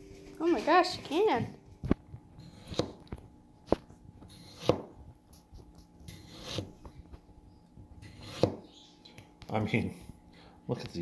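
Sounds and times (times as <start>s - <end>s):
knife slicing tomato: 2.4s - 3.1s, 3.7s - 6.9s, 8.0s - 8.7s.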